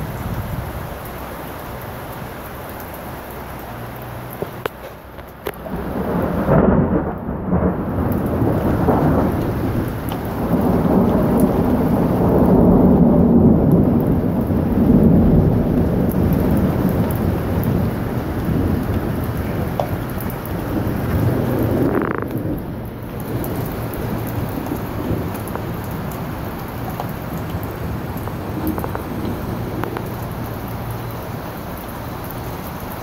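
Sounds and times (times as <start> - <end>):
rain pattering on wooden deck: 0.0 - 33.0
thunder rumbling: 4.4 - 33.0.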